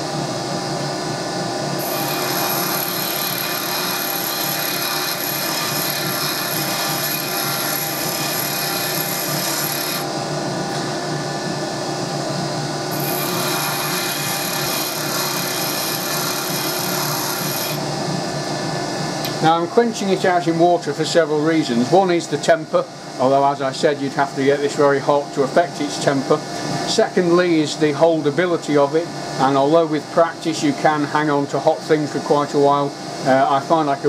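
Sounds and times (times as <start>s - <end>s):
bench grinder grinding steel: 1.8s - 10.1s, 12.9s - 17.8s.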